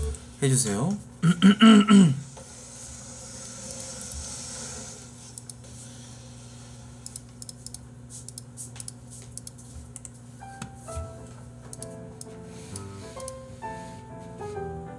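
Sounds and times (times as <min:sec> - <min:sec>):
soft background music melody: 0:10.4 - 0:14.9.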